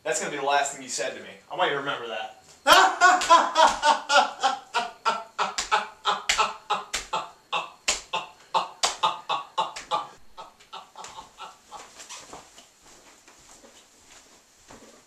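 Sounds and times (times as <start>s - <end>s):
young man laughing: 2.6s - 12.1s.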